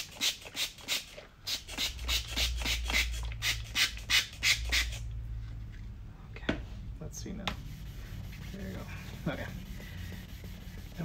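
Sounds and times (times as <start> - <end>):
spray bottle squirting: 0.0 - 5.0.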